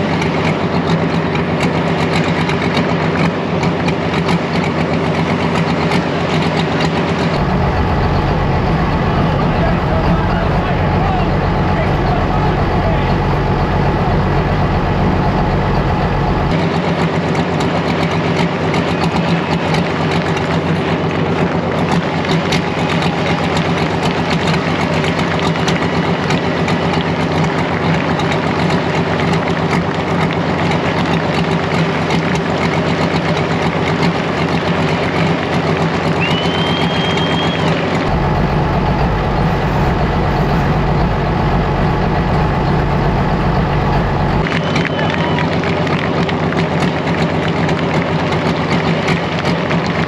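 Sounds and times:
diesel engine running at low revs: 0.0s - 50.0s
rising whistle: 36.2s - 39.2s, 43.6s - 45.6s.

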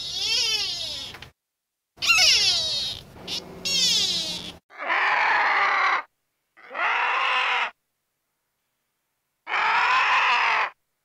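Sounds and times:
vulture screeching calls: 2.0s - 7.8s.

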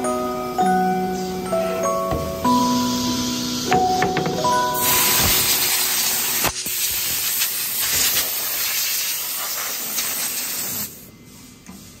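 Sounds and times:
rushing air hiss: 4.8s - 11.1s.

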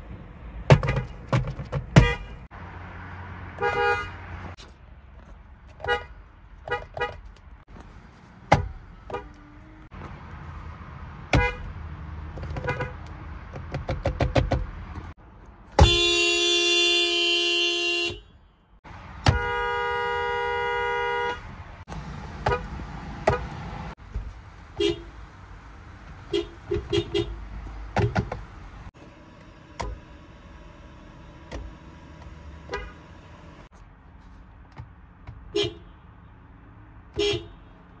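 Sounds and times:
car horn blast: 2.0s - 2.5s, 3.6s - 4.3s, 11.3s - 11.6s, 15.8s - 18.4s, 19.2s - 21.5s, 32.6s - 33.2s, 37.2s - 37.6s.

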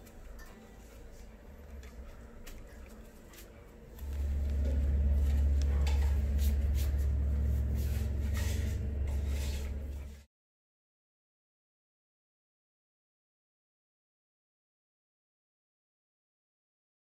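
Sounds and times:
road traffic rumble: 3.8s - 10.2s.

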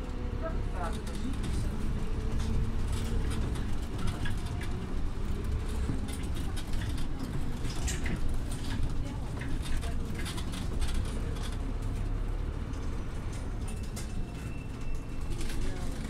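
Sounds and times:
bus diesel engine rumble: 0.0s - 16.0s
light rattles and clicks: 0.2s - 16.0s.

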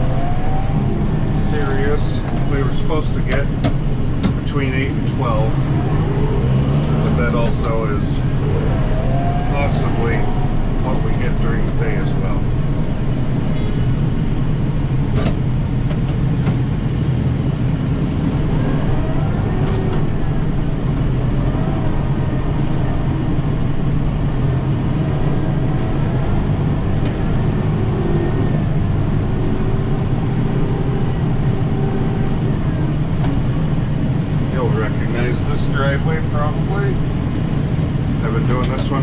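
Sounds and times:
tractor diesel engine droning: 0.0s - 39.0s.

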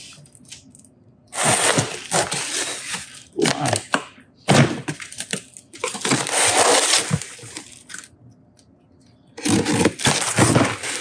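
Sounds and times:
packing tape tearing: 1.3s - 3.9s, 4.9s - 8.1s, 9.4s - 11.0s.

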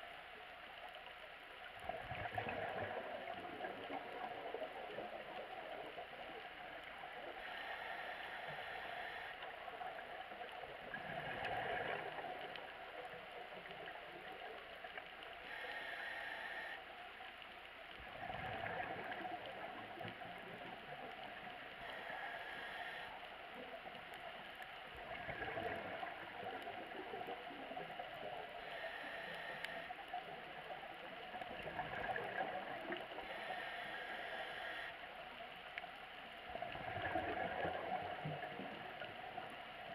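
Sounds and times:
steady underwater hiss: 0.0s - 39.9s
exhaust bubbles gurgling: 1.8s - 6.0s, 18.1s - 21.2s, 24.9s - 28.4s, 31.3s - 33.2s, 36.5s - 39.1s
regulator inhalation hiss: 7.4s - 9.6s, 15.4s - 16.8s, 21.8s - 23.2s, 28.6s - 30.0s, 33.2s - 35.0s.

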